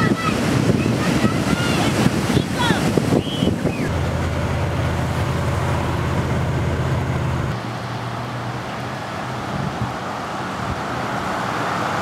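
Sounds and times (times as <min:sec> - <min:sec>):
car engine drone: 0:03.7 - 0:12.0
road noise inside car: 0:03.7 - 0:12.0.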